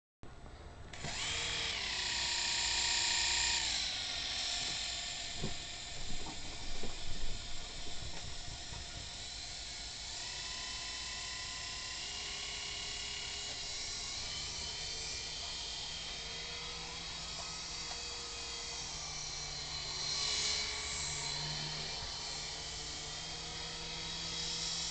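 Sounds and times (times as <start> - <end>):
toy helicopter motors whining: 0.9 - 24.9.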